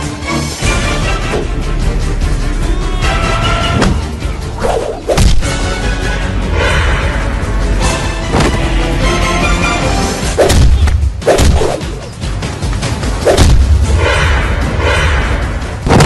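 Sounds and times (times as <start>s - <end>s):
action background music: 0.0s - 16.0s
whooshing swings: 4.6s - 5.4s, 10.4s - 12.2s, 13.2s - 13.6s
punch and kick hits: 10.4s - 11.9s, 13.3s - 13.8s.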